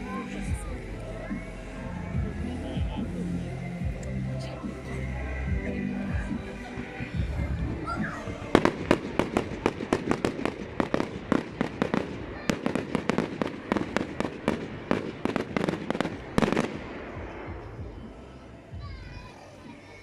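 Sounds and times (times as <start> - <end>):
fireworks bangs: 6.2 - 18.4.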